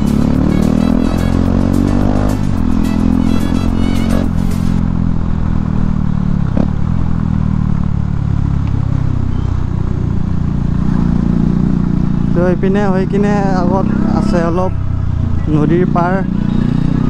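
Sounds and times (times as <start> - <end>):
background music: 0.0 - 4.8
motorcycle engine running: 0.0 - 17.0.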